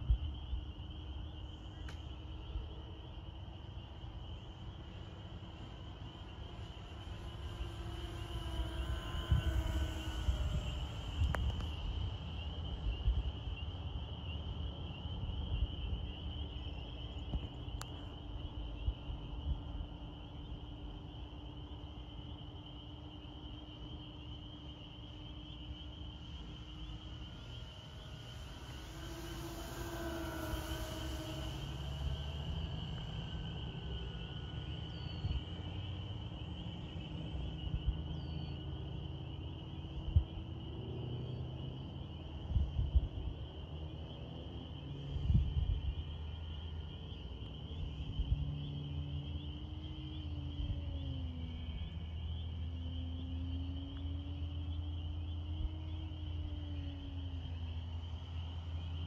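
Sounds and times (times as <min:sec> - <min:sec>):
insect trill: 0:00.0 - 0:59.0
model plane motors droning: 0:00.0 - 0:59.0
wind rumble on microphone: 0:00.0 - 0:59.0
high-pitched buzz: 0:04.0 - 0:14.0, 0:24.8 - 0:40.3.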